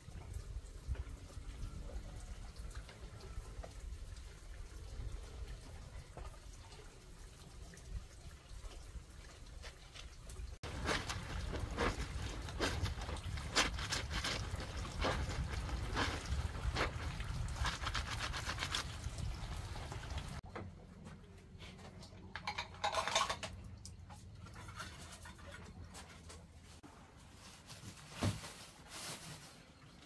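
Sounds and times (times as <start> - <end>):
wet fabric squelching and sloshing: 10.6 - 20.4.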